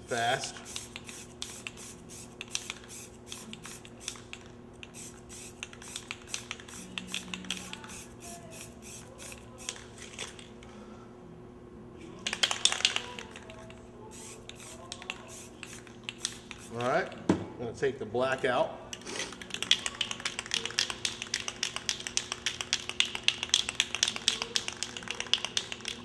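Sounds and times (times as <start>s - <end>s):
steady low hum: 0.0s - 26.0s
aerosol spray can hissing: 0.6s - 9.8s, 14.1s - 16.8s.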